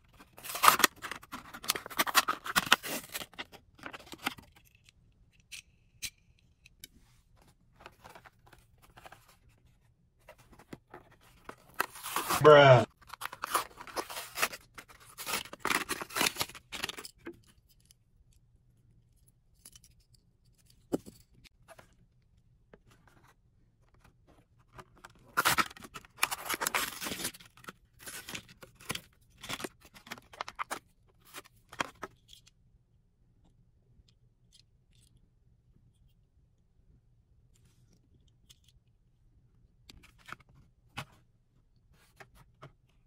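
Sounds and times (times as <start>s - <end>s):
packaging being cut and torn: 0.3s - 3.4s, 11.7s - 17.0s, 25.3s - 27.4s.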